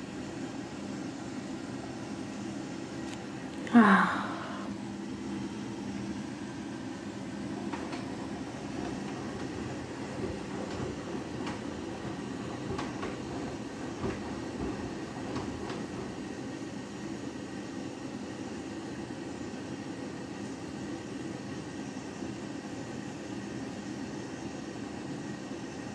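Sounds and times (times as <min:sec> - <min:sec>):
washing machine drum rumbling: 0:07.3 - 0:16.8.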